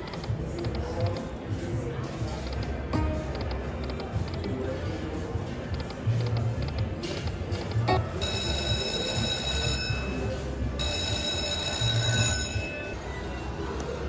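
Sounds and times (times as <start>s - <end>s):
slot machine electronic music: 0.0s - 13.0s.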